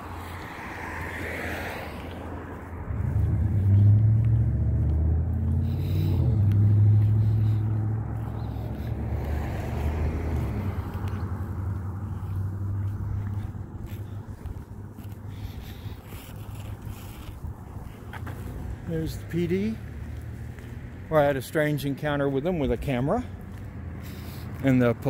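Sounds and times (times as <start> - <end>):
car driving past: 0.0 - 15.0.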